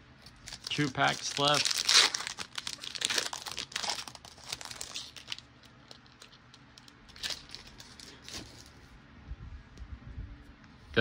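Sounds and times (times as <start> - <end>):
wrapper crinkling and tearing: 0.3 - 8.7.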